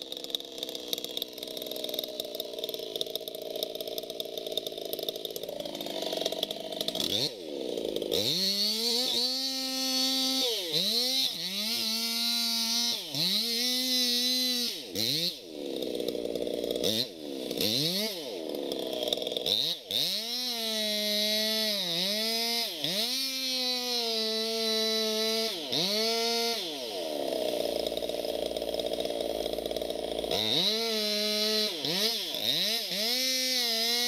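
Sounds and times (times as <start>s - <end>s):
chainsaw cutting wood: 0.0s - 34.0s.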